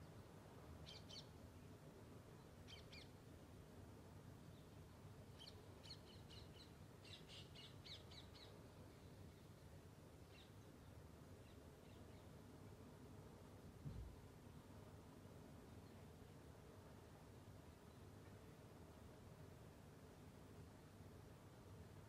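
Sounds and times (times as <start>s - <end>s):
faint high bird chirps: 0.1s - 1.4s, 2.4s - 3.2s, 4.5s - 9.6s.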